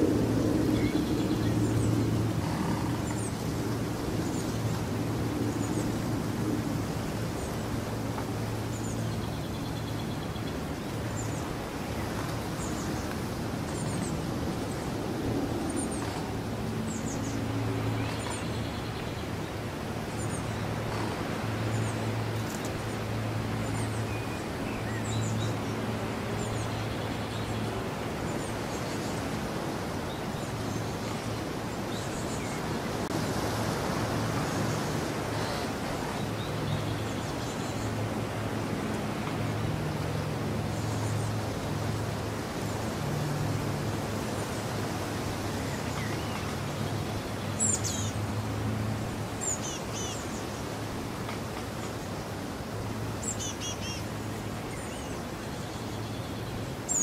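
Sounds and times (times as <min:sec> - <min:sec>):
low engine-like hum: 0:00.0 - 0:29.3
songbirds chirping: 0:00.1 - 0:57.0.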